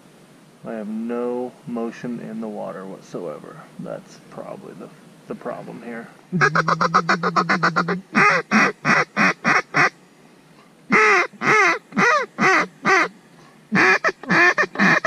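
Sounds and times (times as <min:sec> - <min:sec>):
duck call rattling chatter: 0:06.4 - 0:09.9, 0:10.9 - 0:13.1, 0:13.8 - 0:15.0
duck call short quacks: 0:06.4 - 0:09.9, 0:10.9 - 0:13.1, 0:13.7 - 0:15.0.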